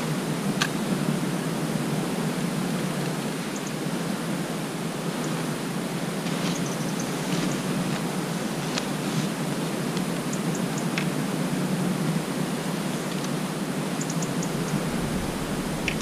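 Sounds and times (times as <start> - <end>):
wind on microphone: 14.2 - 16.0.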